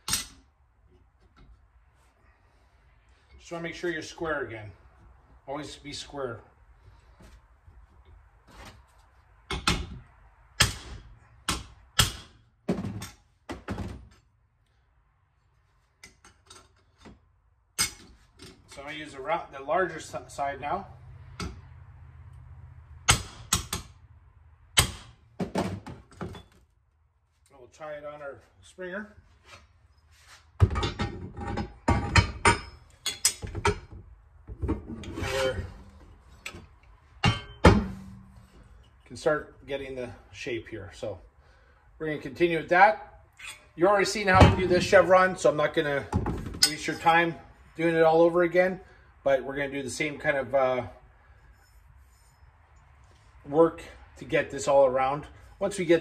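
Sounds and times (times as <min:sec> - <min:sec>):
metal knocks and clanks: 0:30.6 - 0:36.6, 0:37.2 - 0:38.6, 0:44.3 - 0:45.0.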